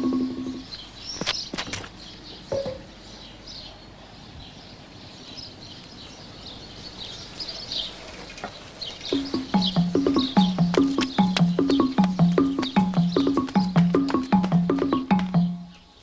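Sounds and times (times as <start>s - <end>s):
small birds chirping: 0.0s - 16.0s
low-pitched music: 9.2s - 15.7s.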